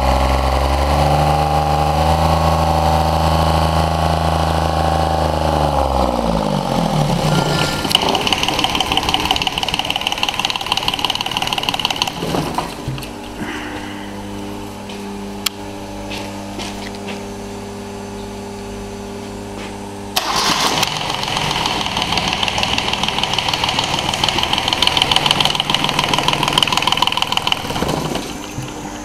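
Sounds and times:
diesel engine idling: 1.8 - 12.6, 20.2 - 29.0
diesel clatter: 7.0 - 13.4, 20.2 - 29.0.

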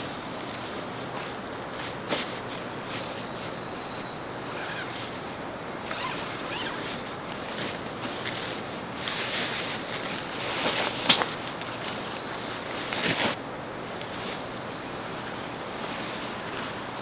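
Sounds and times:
background hiss: 0.0 - 17.0
nylon bag rustling and scraping: 4.5 - 5.2, 5.9 - 11.2, 12.9 - 13.4.

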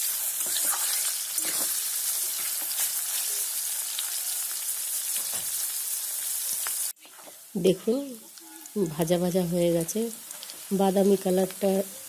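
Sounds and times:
onions sizzling in hot oil: 0.0 - 12.0
spatula scraping: 0.4 - 3.0.

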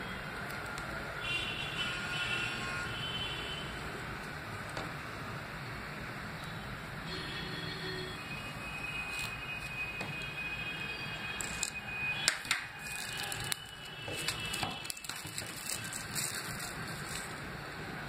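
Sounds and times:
plastic wrap crackling: 11.4 - 17.7.

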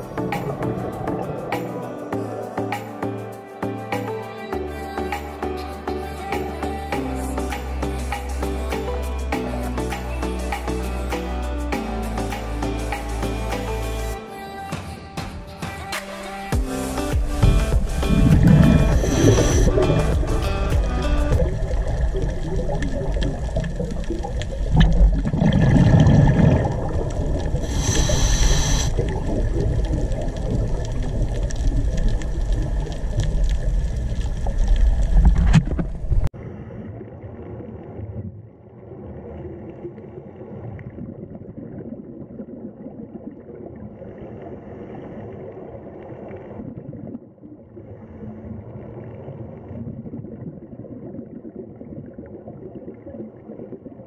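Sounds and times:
underwater water noise: 0.0 - 3.2, 16.8 - 54.0
short hiss: 27.6 - 28.9.

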